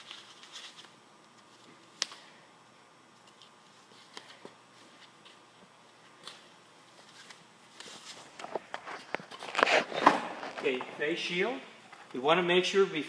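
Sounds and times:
gloves handling noise: 0.0s - 2.4s, 3.1s - 12.2s.

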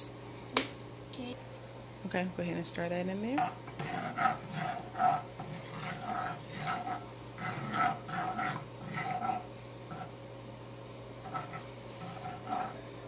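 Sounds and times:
utensil scraping frying pan: 3.3s - 10.2s, 10.8s - 12.9s.

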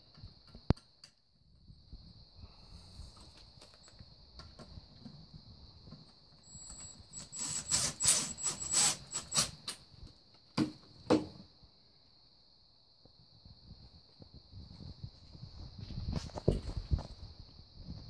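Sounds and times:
cordless drill whining: 6.4s - 9.6s.

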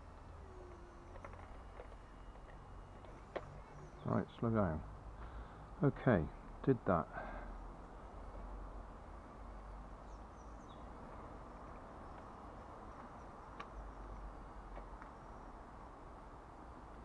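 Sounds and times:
faint outdoor background hiss: 0.0s - 17.0s.

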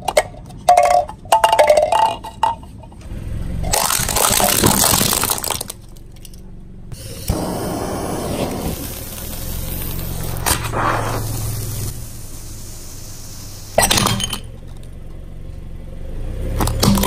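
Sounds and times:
sharp cracks: 3.6s - 6.4s, 7.0s - 15.0s
tyre crushing glass ornaments: 3.7s - 6.4s
sparkler fizzing: 7.0s - 14.4s.

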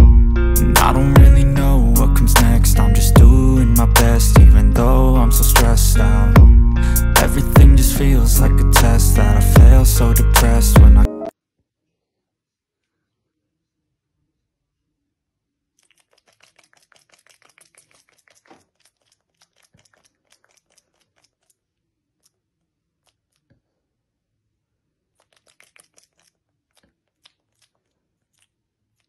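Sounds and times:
rapid dry clicking: 15.9s - 21.6s.

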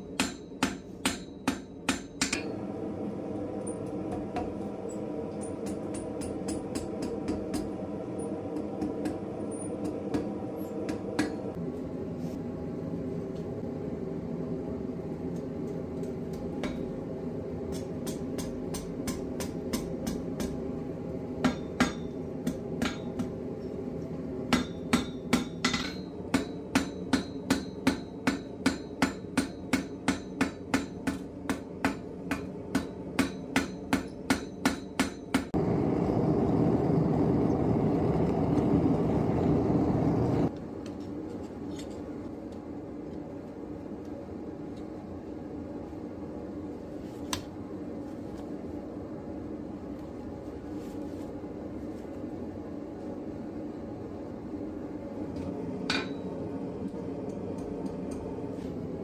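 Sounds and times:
hammer striking steel on anvil: 0.0s - 2.5s, 3.6s - 11.6s, 16.3s - 17.0s, 17.7s - 20.6s, 21.4s - 23.4s, 24.5s - 35.6s, 55.9s - 56.3s
steady hum: 0.0s - 59.0s.

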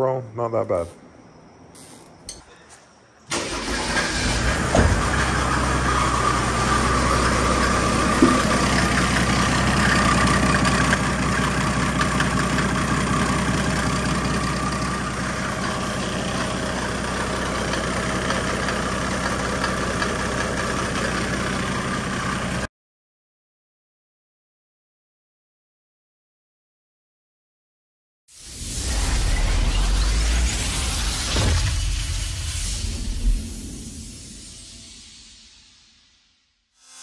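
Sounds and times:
faint turbo whine: 0.5s - 22.7s, 28.4s - 36.1s
diesel engine idling: 3.3s - 22.7s.

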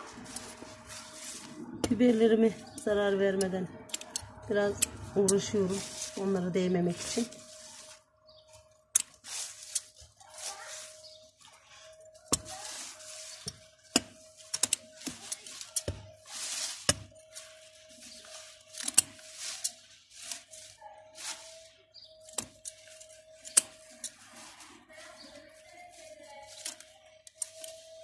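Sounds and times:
leaves rustling: 0.0s - 28.0s
scissors snipping: 3.4s - 5.4s.

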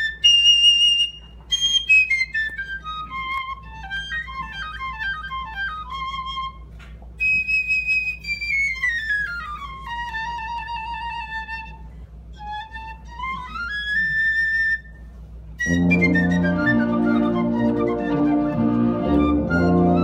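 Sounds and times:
piccolo playing solo: 0.0s - 20.0s.

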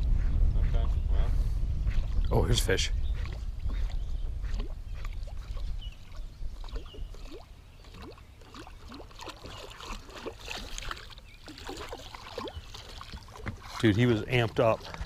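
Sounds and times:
wind rumble on microphone: 0.0s - 7.4s
small waves lapping against boat: 1.8s - 15.0s
watery plinks and slaps: 3.1s - 15.0s.

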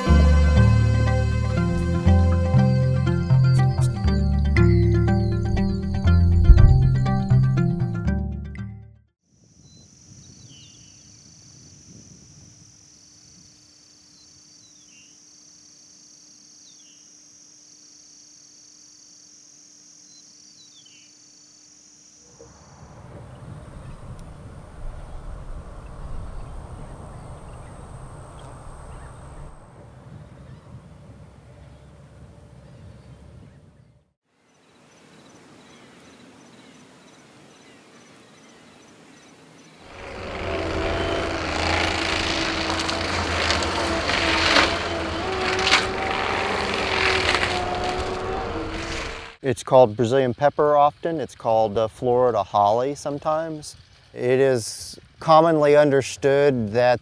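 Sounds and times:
low rumble of wind: 5.4s - 7.6s, 22.5s - 34.1s, 39.8s - 49.4s
high insect drone: 9.3s - 30.3s, 34.4s - 56.0s
soft outdoor hiss: 9.3s - 30.6s, 34.3s - 57.0s
bird call with falling slur: 35.0s - 49.4s.

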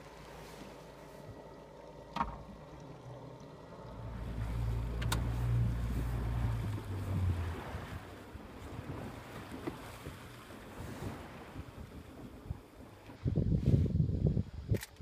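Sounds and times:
wind buffeting microphone: 3.8s - 15.0s.

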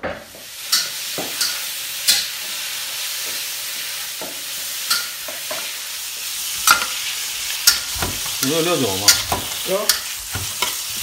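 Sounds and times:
food sizzling in a wok: 0.0s - 11.0s
spatula clinking against pan: 0.7s - 2.3s.

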